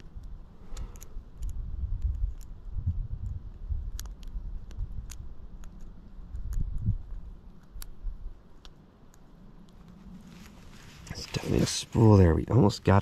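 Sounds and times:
lock pick metallic clicks: 0:00.0 - 0:02.6.

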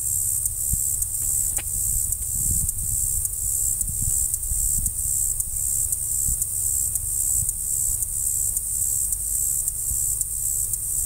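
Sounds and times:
insect chorus: 0:00.0 - 0:11.0
wind rumble on microphone: 0:00.4 - 0:08.3.

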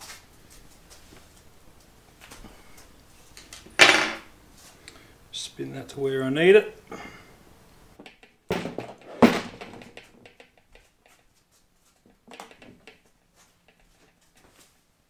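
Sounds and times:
metal knocks and clicks: 0:08.0 - 0:10.9, 0:12.2 - 0:13.1.

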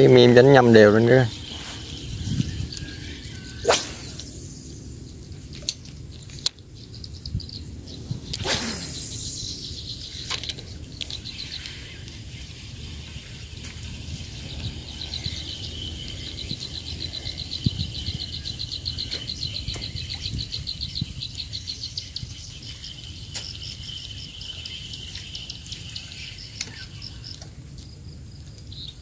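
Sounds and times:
insects chirping: 0:00.0 - 0:29.0
low rumble: 0:00.3 - 0:21.2
faint clicks: 0:26.6 - 0:29.0.

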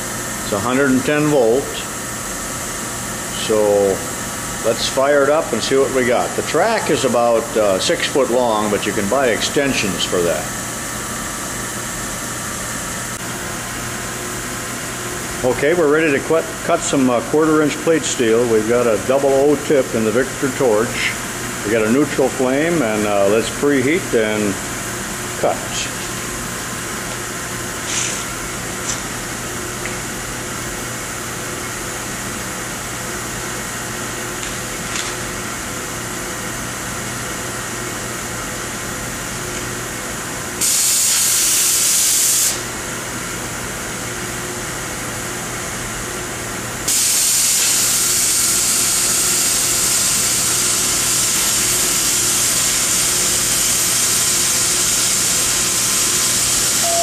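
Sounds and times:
cutting oxygen jet hissing: 0:40.6 - 0:42.7, 0:46.9 - 0:57.0
cutting torch hissing: 0:40.6 - 0:42.7, 0:46.9 - 0:57.0.

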